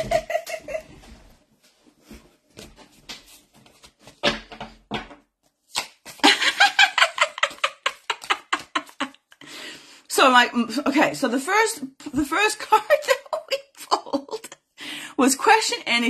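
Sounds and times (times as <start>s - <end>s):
woman laughing: 0.0s - 1.2s, 6.2s - 9.3s, 12.6s - 14.6s.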